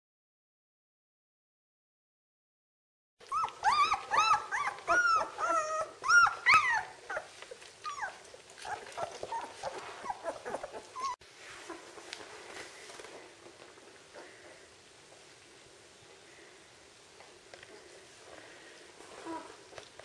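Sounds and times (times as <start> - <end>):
puppies whining and squealing: 3.2 - 11.9, 19.2 - 19.6.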